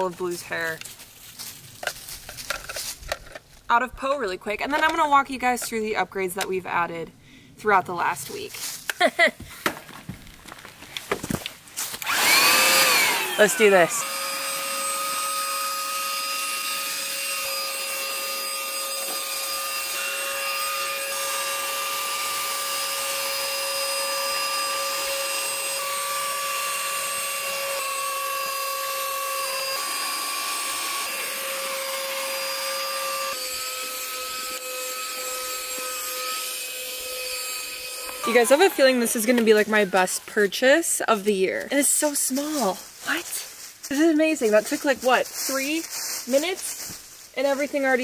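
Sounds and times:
handheld vacuum cleaner whining: 0:12.0 - 0:40.2.

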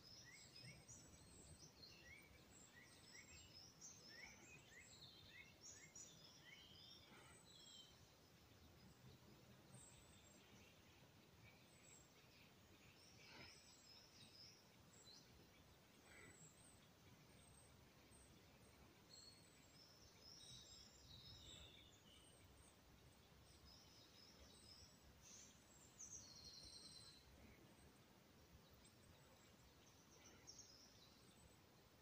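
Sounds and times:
background hiss: 0:00.0 - 0:32.0
songbirds chirping: 0:00.0 - 0:32.0.

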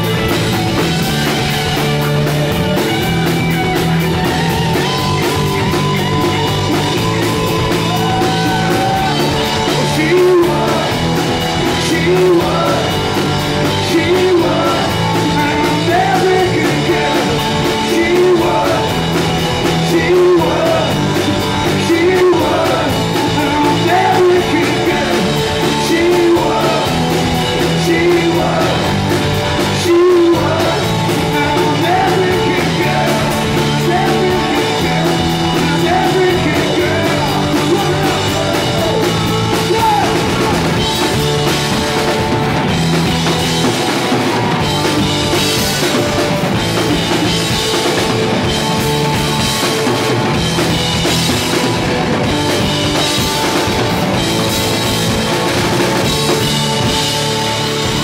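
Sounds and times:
rock band playing: 0:00.0 - 0:58.0
man singing: 0:04.3 - 0:41.8.

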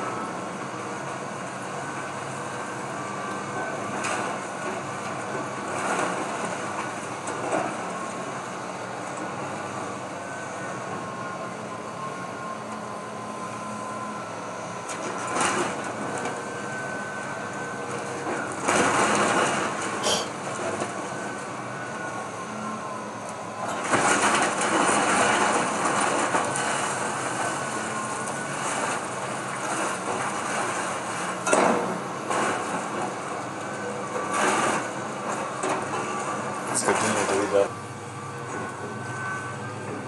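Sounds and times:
excavator engine running: 0:00.0 - 0:40.0
wood splintering and debris falling: 0:23.8 - 0:27.4.

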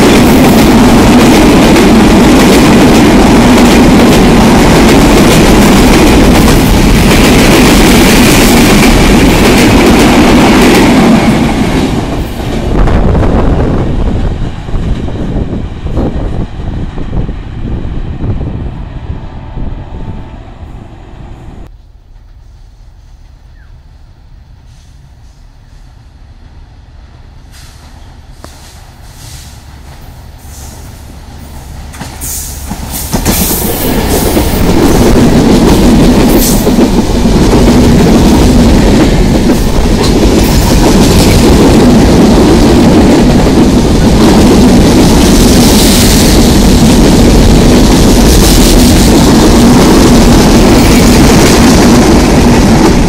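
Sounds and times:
clickety-clack of rail joints: 0:00.0 - 0:12.7, 0:22.1 - 0:23.7, 0:27.4 - 0:53.0
train wheels rumbling on rails: 0:00.0 - 0:53.0.

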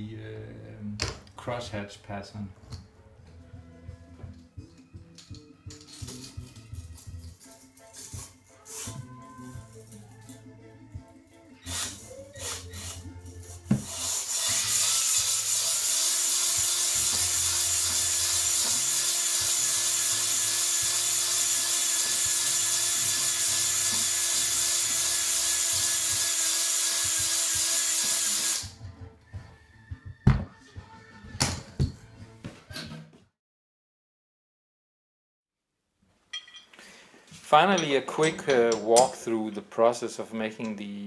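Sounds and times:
drill honing rasping hiss: 0:13.8 - 0:28.7.

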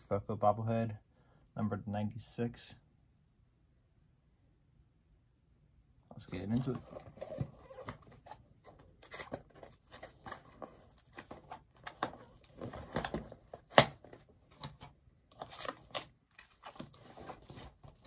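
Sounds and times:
cardboard scraping and tearing: 0:15.4 - 0:18.0.

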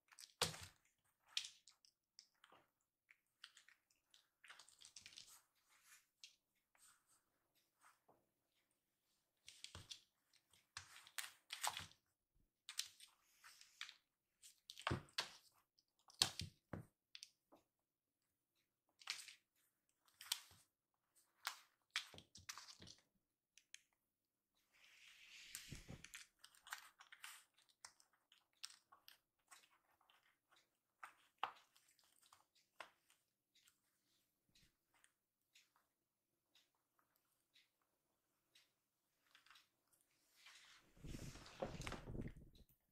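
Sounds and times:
kittens scuffing and scratching: 0:40.3 - 0:42.6.

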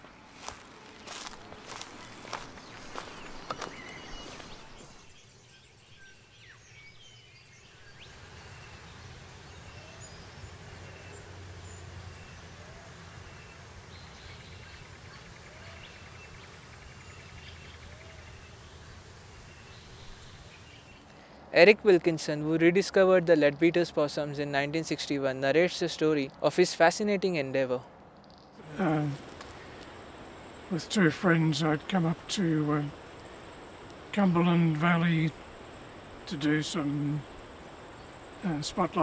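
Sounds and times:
footsteps crunching on leaves: 0:00.0 - 0:05.2
faint bird chirps: 0:00.4 - 0:21.4
steady low hum: 0:28.6 - 0:39.0.

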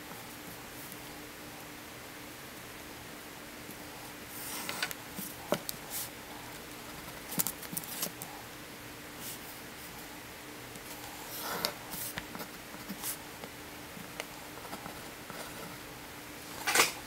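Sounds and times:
faint steady hum: 0:00.0 - 0:17.0
paper rustling: 0:04.3 - 0:08.3.

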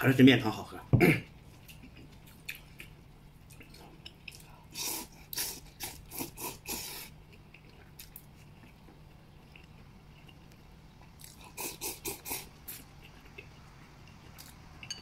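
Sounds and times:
person slurping noodles: 0:04.7 - 0:07.1, 0:11.4 - 0:12.8.

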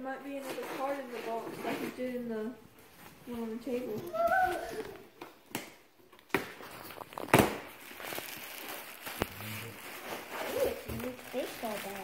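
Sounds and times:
plastic packaging crinkling: 0:06.5 - 0:12.0.

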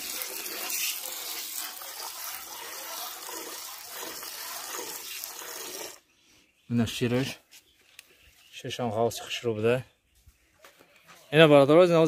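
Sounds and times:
milk squirting into metal pail: 0:00.0 - 0:06.0.

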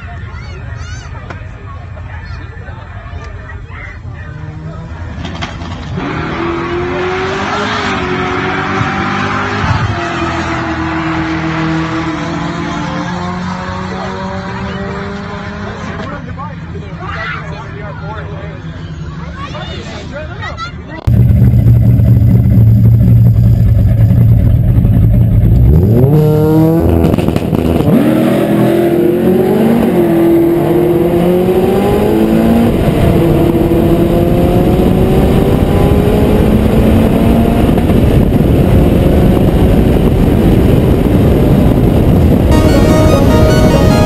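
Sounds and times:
wind and road noise: 0:00.0 - 0:17.7, 0:18.8 - 0:44.0
car engine revving through gears: 0:05.2 - 0:16.0, 0:25.4 - 0:44.0.

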